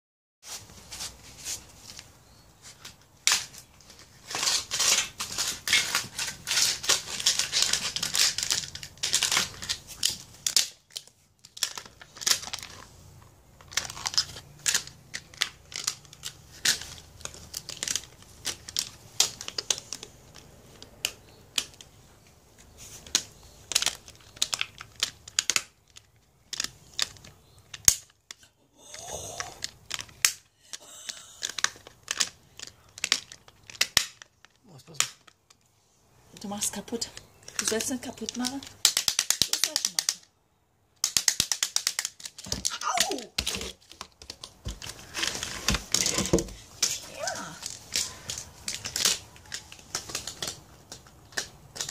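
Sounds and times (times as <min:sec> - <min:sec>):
puppy chewing and tearing toy: 0:03.2 - 0:21.9, 0:41.0 - 0:51.9.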